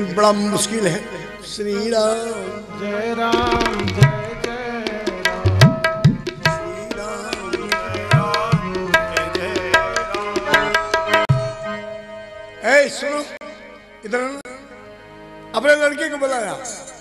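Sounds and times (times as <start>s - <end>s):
tabla playing brisk rhythm: 3.3s - 11.7s.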